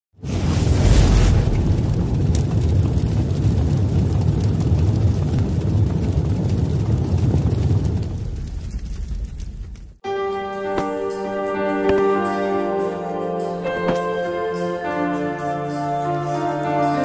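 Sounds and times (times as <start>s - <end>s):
low rumble: 0.2s - 10.0s.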